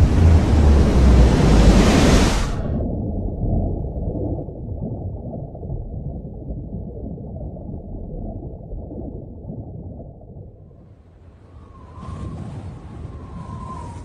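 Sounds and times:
muffled low rumbling: 0.0 - 10.8.

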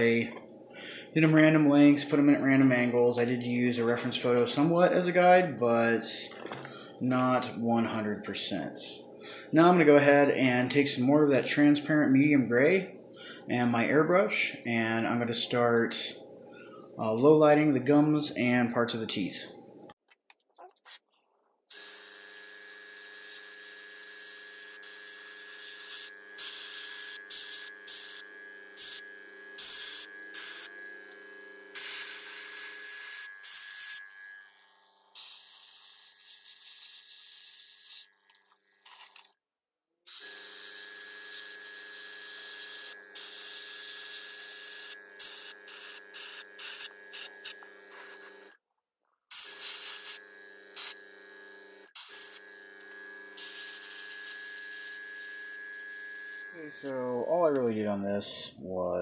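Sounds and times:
airbrush compressor hum: 21.7 - 39.3, 40.1 - 48.6, 49.3 - 58.0
airbrush spraying hiss: 23.2 - 29.0, 29.6 - 30.7, 31.7 - 34.1, 35.1 - 38.1, 42.3 - 48.3, 49.3 - 50.2, 50.8 - 51.0, 53.4 - 55.8.

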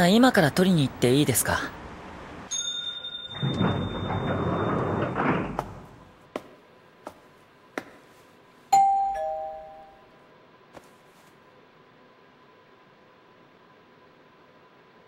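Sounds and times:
two-note doorbell chime: 2.5 - 4.0, 8.8 - 10.1
footsteps on tiled floor: 6.3 - 8.4, 10.7 - 11.4.

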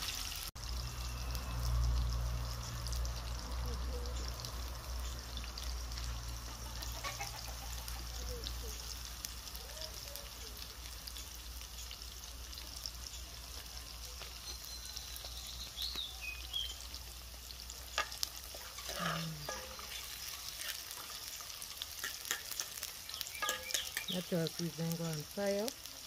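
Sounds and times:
seasoning sizzling in hot oil: 0.0 - 26.0
fork scraping a pot: 17.9 - 21.2, 21.9 - 24.1.

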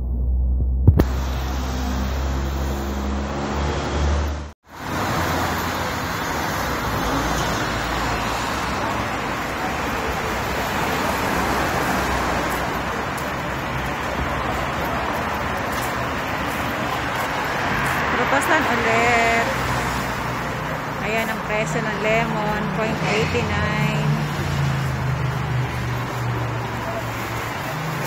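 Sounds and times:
low steady drone: 0.0 - 3.8
city street traffic: 0.0 - 28.0.

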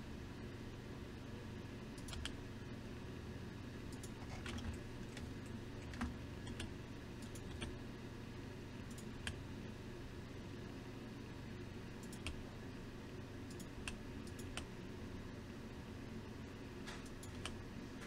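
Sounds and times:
steady low hum: 0.0 - 18.0
keyboard and mouse clicks: 2.0 - 2.4, 3.9 - 7.7, 12.0 - 12.4, 13.5 - 14.7, 16.9 - 17.6.

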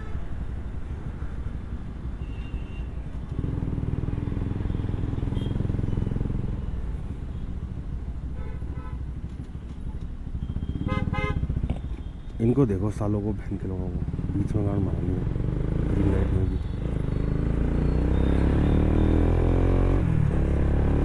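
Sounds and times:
motorcycle engine running: 10.3 - 12.1.

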